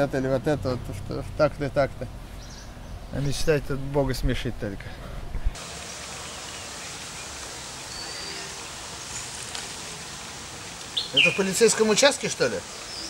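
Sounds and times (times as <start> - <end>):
outdoor background hiss: 0.0 - 13.0
faint high chirp: 7.9 - 8.6.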